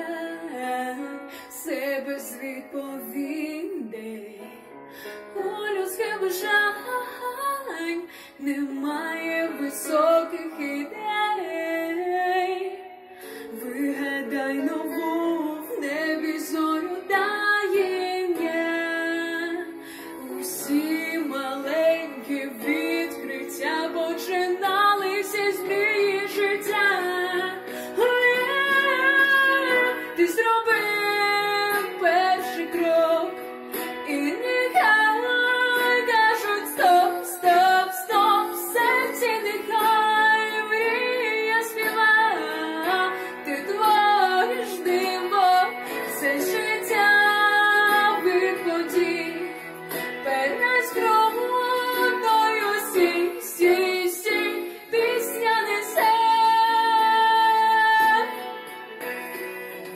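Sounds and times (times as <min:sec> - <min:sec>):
woman singing: 0:00.0 - 0:59.0
instrumental accompaniment: 0:04.6 - 0:59.9.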